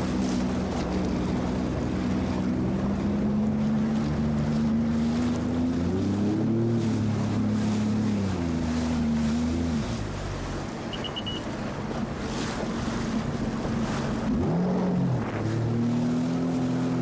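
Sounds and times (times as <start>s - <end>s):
jet ski engine revving: 0.0s - 17.0s
wind noise on microphone: 11.0s - 17.0s.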